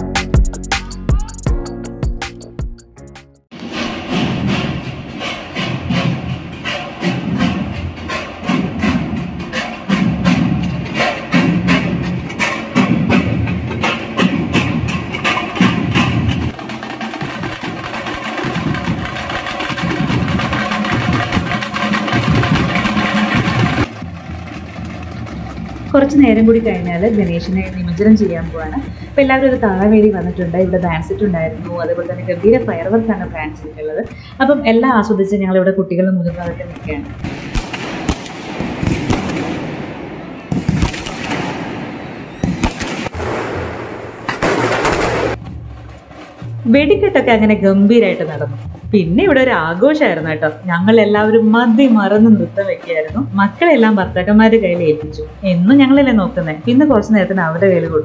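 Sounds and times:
drum band playing fast rhythm: 0.0 - 2.8, 4.3 - 33.5
fireworks bangs: 37.2 - 45.5
fireworks crackling: 37.3 - 45.4.

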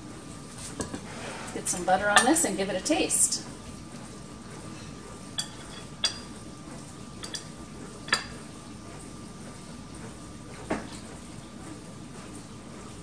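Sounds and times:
faint room hum: 0.0 - 13.0
knife clinking on ceramic dish: 7.2 - 7.5.

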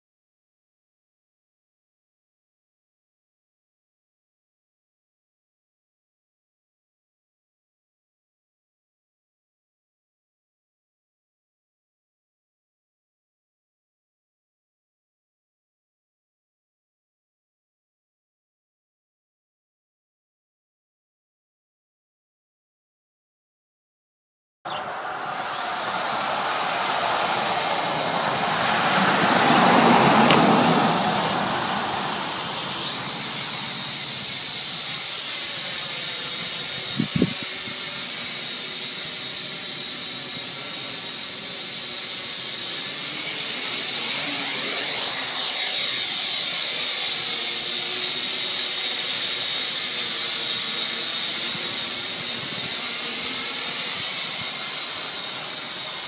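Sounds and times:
rushing noise: 24.7 - 35.5
small drone motors whining: 24.7 - 56.0.

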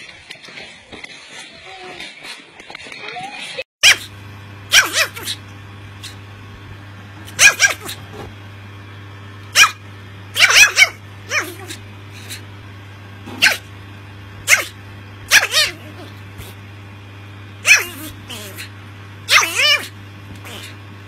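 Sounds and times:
small dog yapping: 3.0 - 4.1, 4.7 - 5.4, 6.0 - 6.2, 7.2 - 8.3, 9.5 - 12.5, 13.3 - 13.7, 14.4 - 16.6, 17.6 - 18.7, 19.3 - 20.8.

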